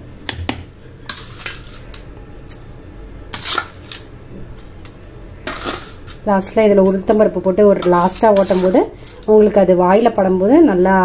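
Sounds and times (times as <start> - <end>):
spoon scraping steel jar: 1.1 - 2.0, 5.5 - 6.2, 7.7 - 9.5.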